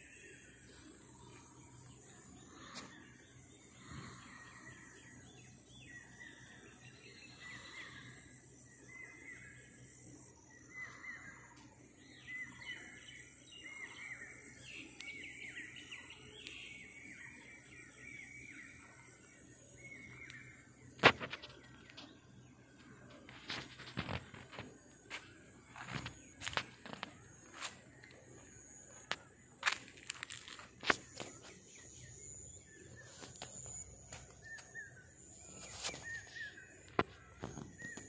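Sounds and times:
small birds chirping: 0:00.0 - 0:38.0.

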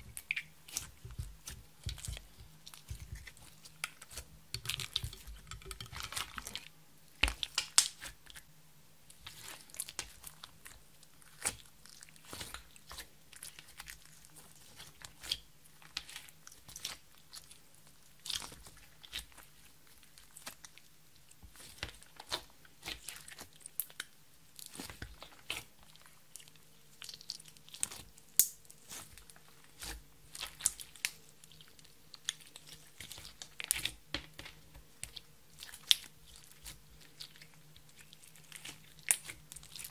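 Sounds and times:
slime kneaded by hand: 0:00.0 - 0:08.4.

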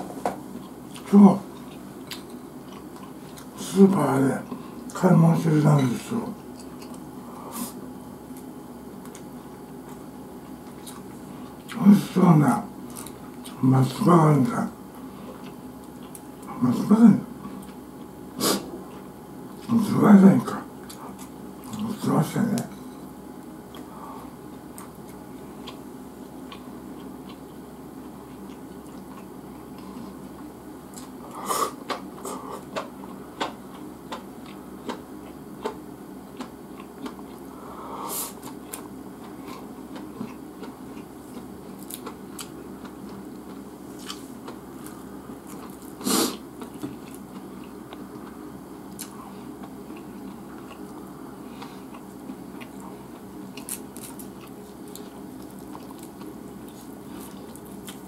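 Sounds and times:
person chewing: 0:00.5 - 0:03.6, 0:06.5 - 0:11.8, 0:12.8 - 0:13.6, 0:15.0 - 0:16.5, 0:20.8 - 0:21.8, 0:23.6 - 0:58.0.

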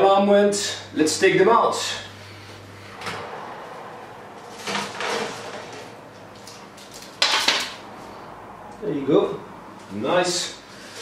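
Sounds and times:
metal baking tray scraping: 0:04.4 - 0:06.0
oven door opening: 0:04.4 - 0:06.7
baking tray clatter: 0:04.4 - 0:07.8.

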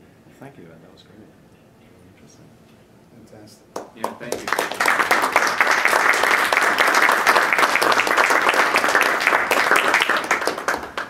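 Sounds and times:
audience applause: 0:04.0 - 0:11.0.

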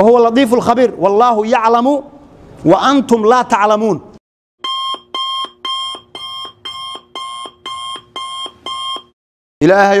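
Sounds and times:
alarm clock beeping: 0:04.6 - 0:09.2.

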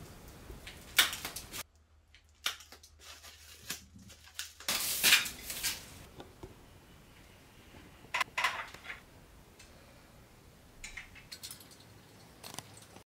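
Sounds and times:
plastic packaging crinkling: 0:00.6 - 0:06.1.

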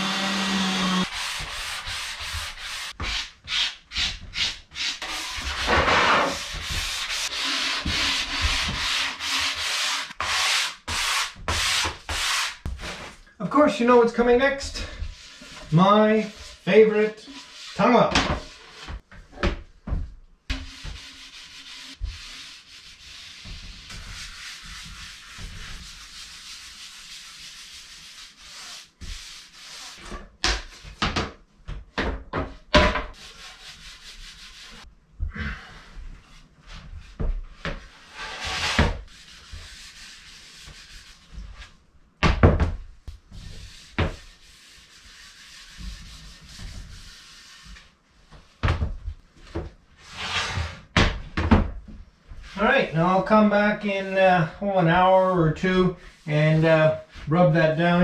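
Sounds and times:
rag scrubbing wood: 0:00.0 - 0:12.9, 0:14.8 - 0:19.0, 0:20.5 - 0:30.0.

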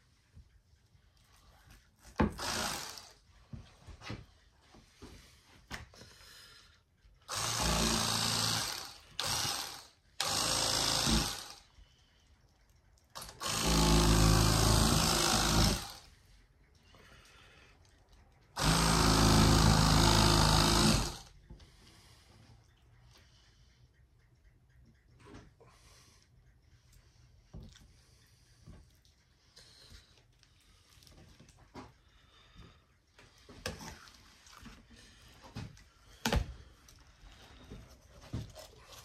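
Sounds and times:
electric fillet knife buzzing: 0:02.2 - 0:03.2, 0:07.3 - 0:11.7, 0:13.2 - 0:16.1, 0:18.6 - 0:21.3.

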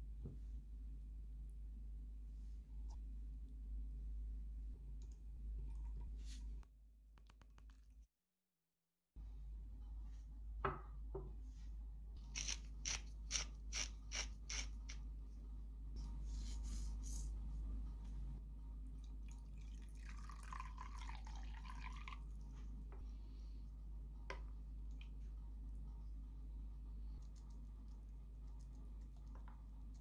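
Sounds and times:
steady low hum: 0:00.0 - 0:06.7, 0:09.2 - 0:30.0
water poured into pot: 0:19.3 - 0:22.4.

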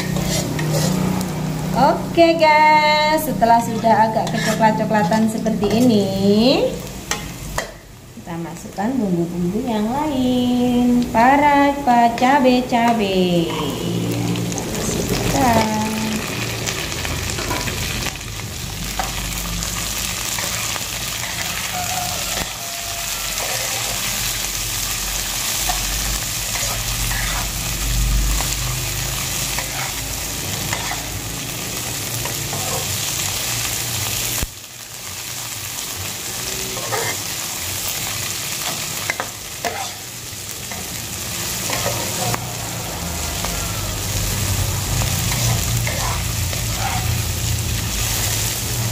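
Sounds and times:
metal spatula scraping pan: 0:00.0 - 0:01.2, 0:03.5 - 0:06.0, 0:20.0 - 0:24.4, 0:25.5 - 0:27.6, 0:29.2 - 0:31.2, 0:32.2 - 0:33.1, 0:36.6 - 0:37.4, 0:38.6 - 0:40.0, 0:41.6 - 0:42.4, 0:45.0 - 0:47.3
vegetables sizzling in hot oil: 0:00.0 - 0:48.9.

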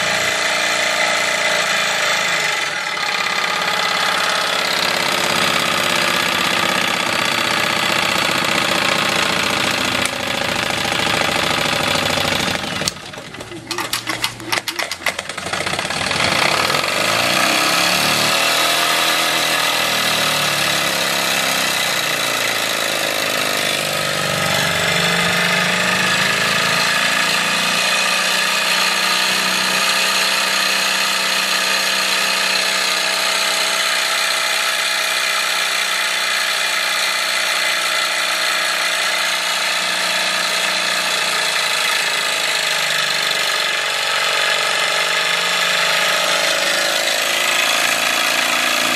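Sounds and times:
steam engine mechanical whine: 0:00.0 - 0:17.4.

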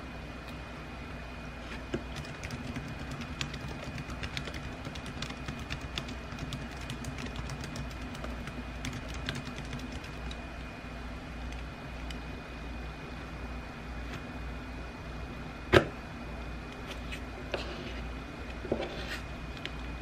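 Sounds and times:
laptop keyboard typing: 0:01.9 - 0:10.5.

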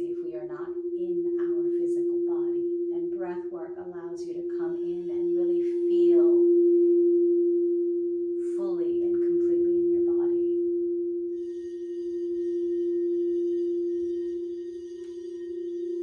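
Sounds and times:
singing bowl ringing: 0:00.0 - 0:16.0.

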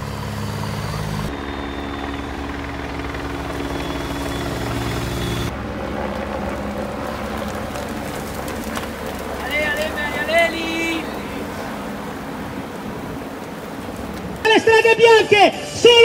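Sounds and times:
vehicle engines passing on wet road: 0:00.0 - 0:01.9, 0:03.4 - 0:14.5.

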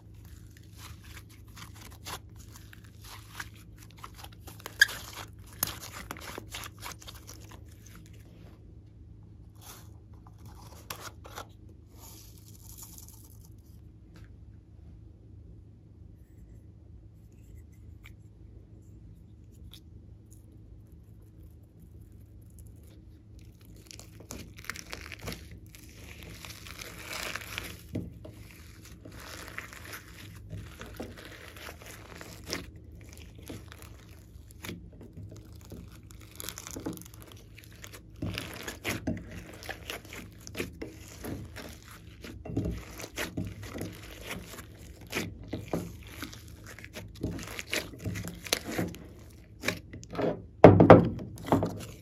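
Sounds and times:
slime squished by hand: 0:00.0 - 0:08.3, 0:19.5 - 0:50.1.

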